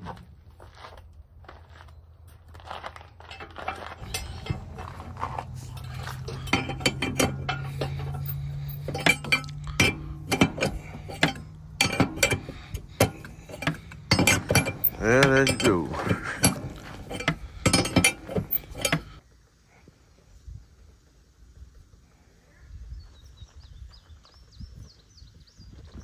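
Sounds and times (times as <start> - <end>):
low steady hum: 3.3 - 19.2
wrench clinking on metal: 3.3 - 19.2.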